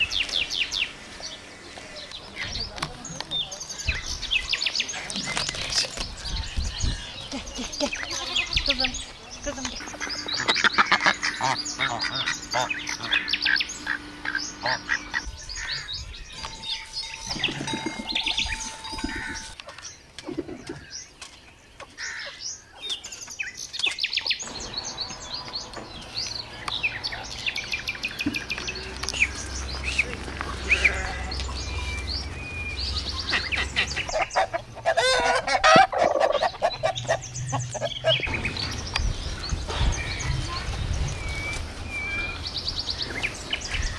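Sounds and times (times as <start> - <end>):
birds chirping: 0.0 - 43.9
harsh poultry calls: 9.8 - 20.9, 24.4 - 40.8.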